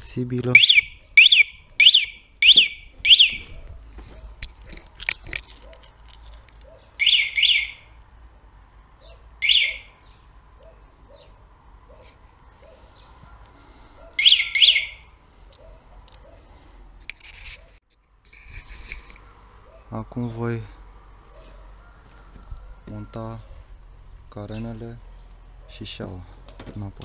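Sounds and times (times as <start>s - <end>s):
motorcycle alarm chirps: 0.5s - 3.6s, 7.0s - 8.0s, 9.4s - 10.0s, 14.2s - 15.2s.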